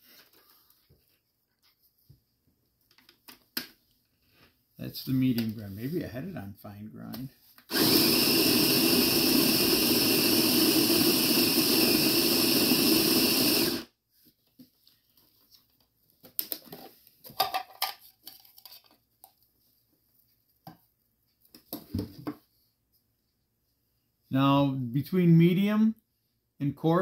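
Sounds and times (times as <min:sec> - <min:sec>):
coffee grinder motor running: 0:07.7 - 0:13.9.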